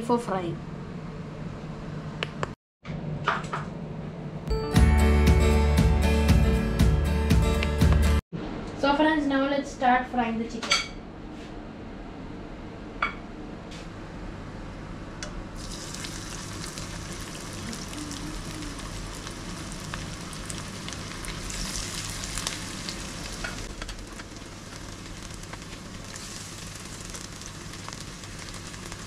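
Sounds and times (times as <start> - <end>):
chicken sizzling in hot oil: 15.6 - 29.0.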